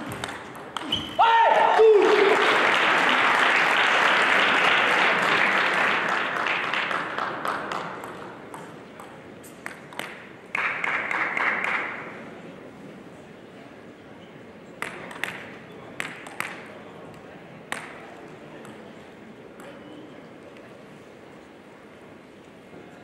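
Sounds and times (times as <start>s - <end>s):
table tennis ball bouncing: 0.0s - 1.2s, 7.7s - 10.4s, 14.8s - 16.6s, 17.7s - 18.0s
spectators applauding: 1.2s - 8.0s, 10.5s - 12.0s.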